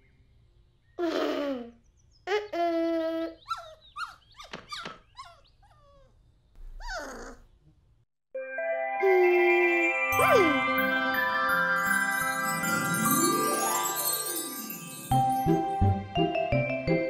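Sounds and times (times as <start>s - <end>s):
cartoon dog whining and yipping: 2.4s - 7.5s.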